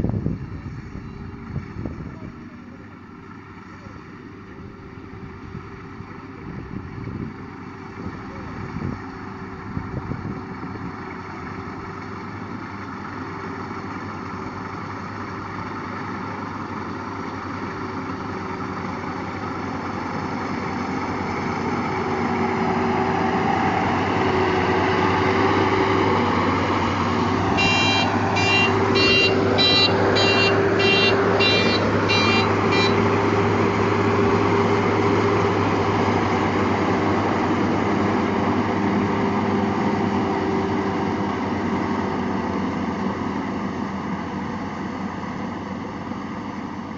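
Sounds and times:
combine harvester engine drone: 0.0s - 46.9s
short high beeps: 27.6s - 33.0s.

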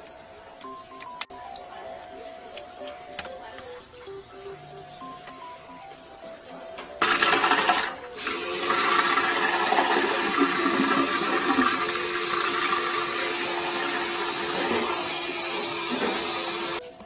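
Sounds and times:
drain cleaning machine whirring: 6.8s - 17.0s.

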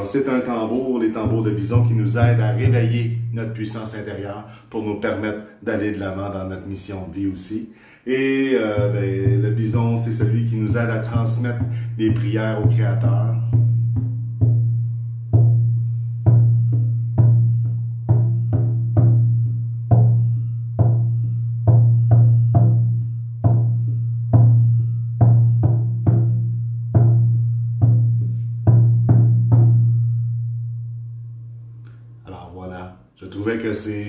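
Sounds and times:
frame drum booming strokes: 11.1s - 30.0s.

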